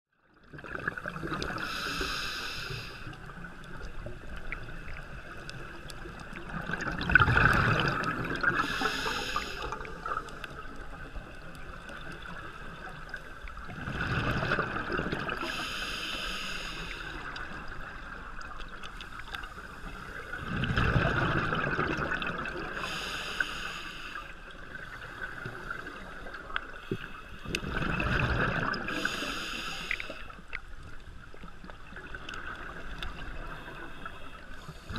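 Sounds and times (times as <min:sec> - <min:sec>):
gurgling exhaled bubbles: 0:00.4 - 0:01.8, 0:03.3 - 0:15.6, 0:20.0 - 0:22.9, 0:27.4 - 0:29.3
regulator hissing inhalations: 0:01.5 - 0:03.2, 0:08.6 - 0:09.9, 0:15.4 - 0:17.3, 0:22.8 - 0:24.4, 0:28.9 - 0:30.4.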